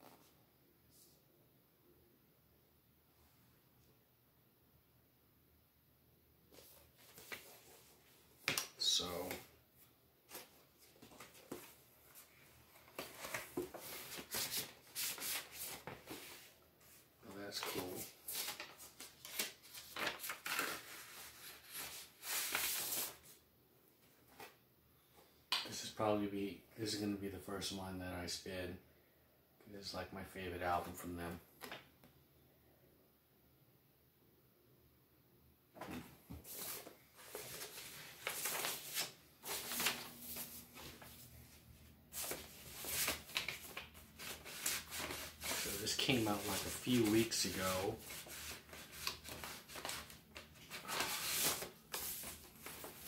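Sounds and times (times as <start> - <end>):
paper sleeve rustling and scraping: 12.2 - 17.0, 17.6 - 23.4, 36.4 - 53.0.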